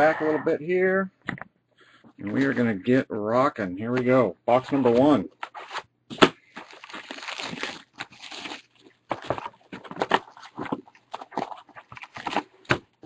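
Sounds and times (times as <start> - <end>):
cardboard box tearing and crinkling: 5.5 - 12.8.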